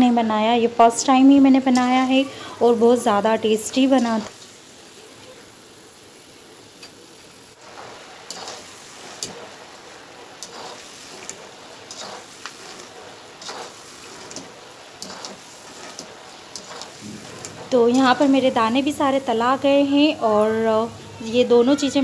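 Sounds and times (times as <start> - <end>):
peanuts sizzling in hot oil: 0.0 - 22.0
strainer scraping a pan: 7.6 - 9.6, 10.3 - 19.0.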